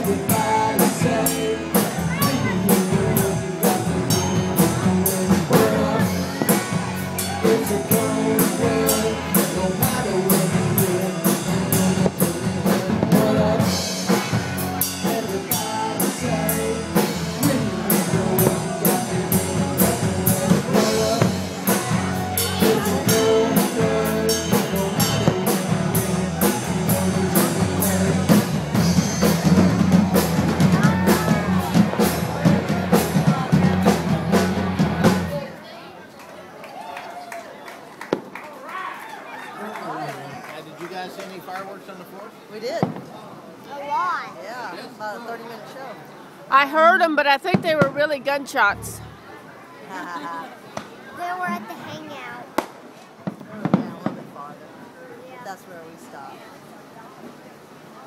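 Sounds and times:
person singing: 0.0s - 29.4s
rock music: 0.0s - 35.4s
steady drum beat: 0.0s - 35.4s, 46.8s - 49.1s.

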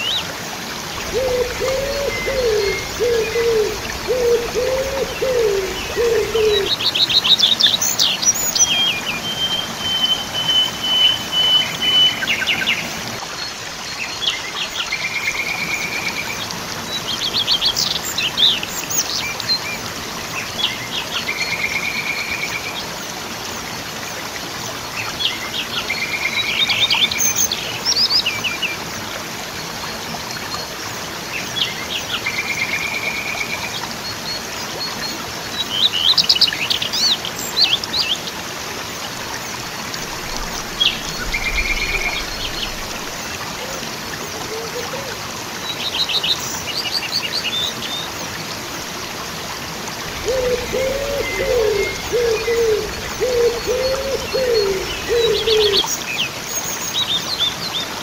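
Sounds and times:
songbirds chirping: 0.0s - 13.2s, 39.1s - 44.2s, 49.7s - 56.4s
waterfall rushing: 0.0s - 58.0s
bird cooing: 1.0s - 6.8s, 40.2s - 43.0s, 50.1s - 55.9s.

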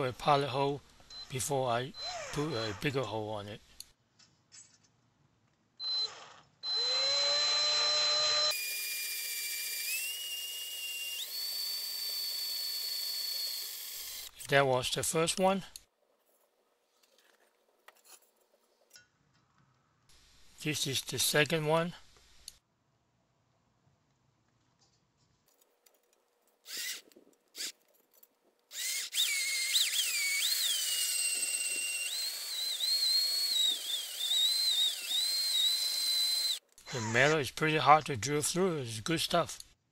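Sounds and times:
cordless drill whining through metal: 1.0s - 3.1s, 5.8s - 14.5s, 26.6s - 27.9s, 28.7s - 37.4s.

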